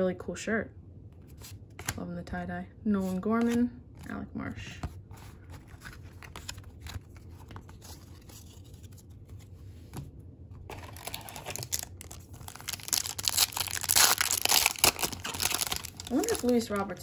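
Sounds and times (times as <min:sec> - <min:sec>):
handling trading cards: 0:01.2 - 0:02.0, 0:03.0 - 0:17.0
foil wrapper crinkling and tearing: 0:10.7 - 0:17.0.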